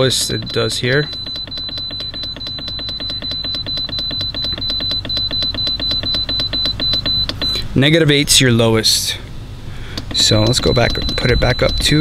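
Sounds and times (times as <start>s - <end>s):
rapid high beeps: 0.0s - 7.6s, 10.1s - 12.0s.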